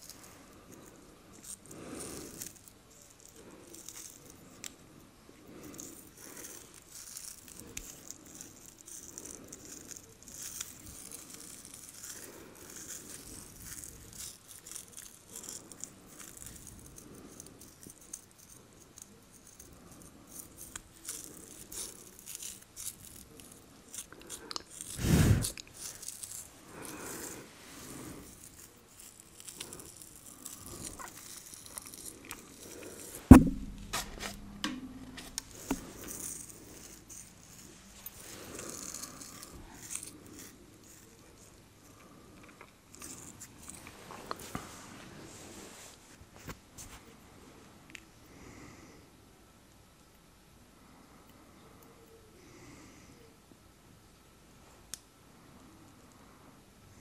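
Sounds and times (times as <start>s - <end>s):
fingernails scratching skin and hair: 0.0s - 4.7s, 5.6s - 34.5s, 35.1s - 41.6s
loud low thump: 33.3s - 35.2s.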